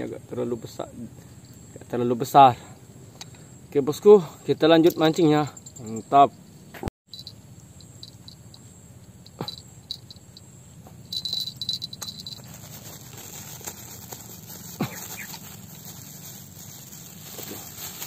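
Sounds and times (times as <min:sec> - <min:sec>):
insects chirping: 0:00.0 - 0:18.0
fishing tackle clicks and rustling: 0:11.1 - 0:18.0.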